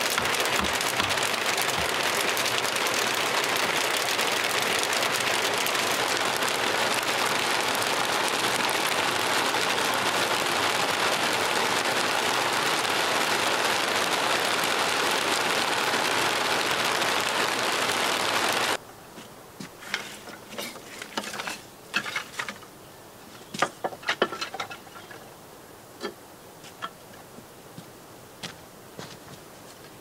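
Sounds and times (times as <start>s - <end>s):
steady rain falling: 0.0s - 30.0s
knocks and clatter at workbench: 23.5s - 25.1s.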